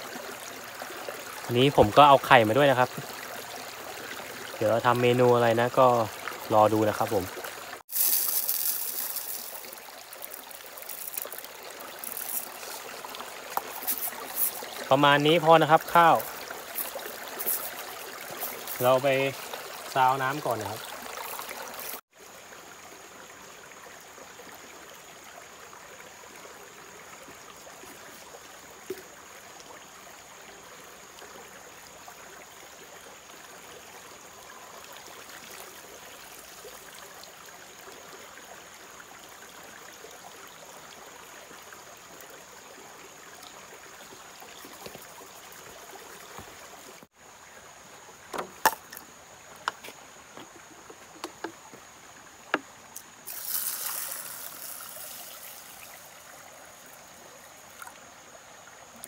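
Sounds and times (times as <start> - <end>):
stream running over rocks: 0.0 - 59.0
water sloshing in a pot: 4.8 - 22.0
light knocks and clicks: 51.2 - 51.8.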